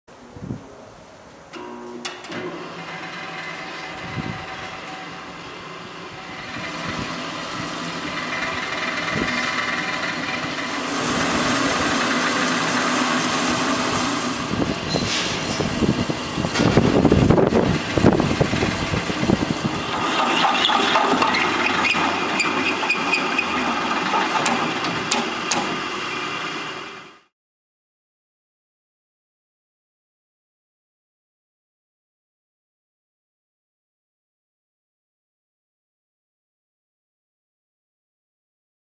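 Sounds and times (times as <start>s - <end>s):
drill press motor hum: 1.6s - 27.3s
drill bit grinding through metal: 2.2s - 27.0s.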